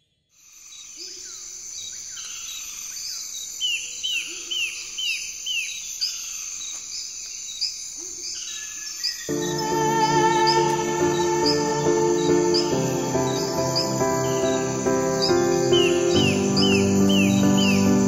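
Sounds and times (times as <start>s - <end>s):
birds chirping: 1.1s - 18.0s
high-pitched insect drone: 9.3s - 18.0s
lower bird call: 9.3s - 18.0s.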